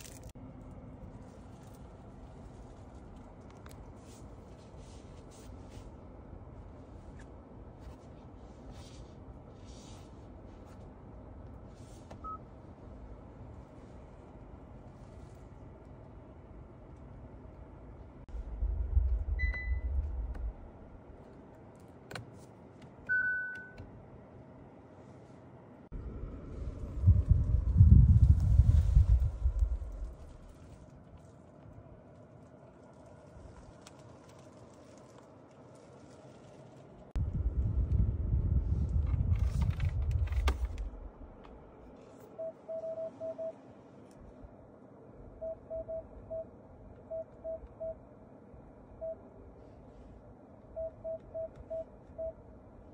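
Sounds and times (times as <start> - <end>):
low rumble: 15.6 - 21.2, 25.9 - 32.0, 37.0 - 41.9
car warning beeps: 19.3 - 20.0, 23.1 - 23.8, 42.3 - 43.6, 45.4 - 48.0, 50.7 - 52.4
short electronic beeps: 19.4 - 19.9, 42.4 - 43.6, 45.4 - 46.5.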